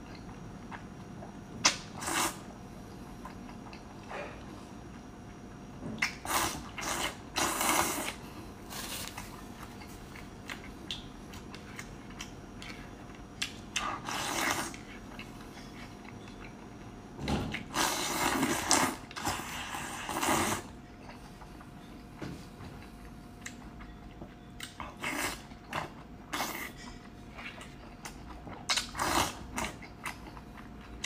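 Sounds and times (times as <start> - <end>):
person slurping noodles: 2.0 - 2.4, 6.3 - 8.2, 17.7 - 20.7.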